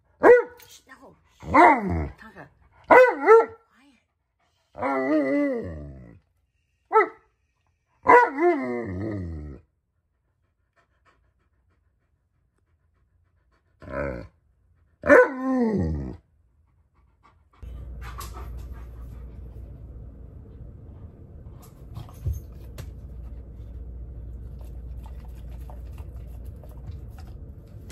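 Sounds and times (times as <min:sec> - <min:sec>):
steady low hum: 0:16.3 - 0:27.9.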